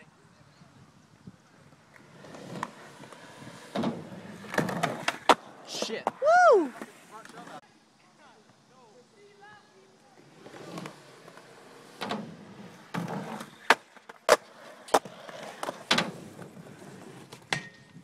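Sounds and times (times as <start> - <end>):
skateboards rolling on concrete: 0.0 - 18.0
skateboards clacking on ground: 1.7 - 7.6, 12.8 - 18.0.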